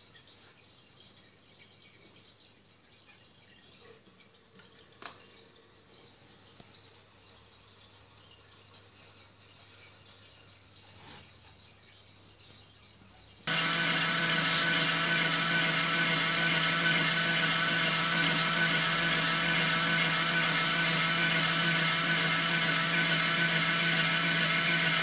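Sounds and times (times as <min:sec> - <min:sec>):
electric motor whirring hum: 0:13.5 - 0:25.0.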